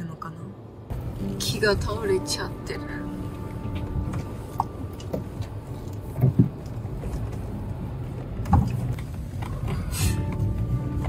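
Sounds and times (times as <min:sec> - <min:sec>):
car cabin low rumble: 0:00.9 - 0:11.0
vehicle thumping over bumps: 0:06.1 - 0:07.0.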